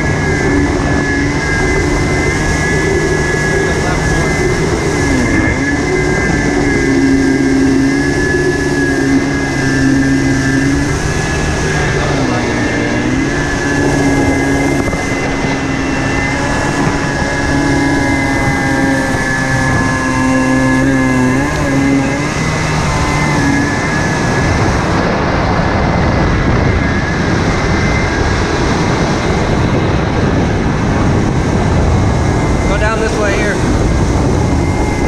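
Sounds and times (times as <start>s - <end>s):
rushing water: 0.0s - 25.9s
jet ski engine running: 0.0s - 35.0s
wind noise: 0.0s - 35.0s.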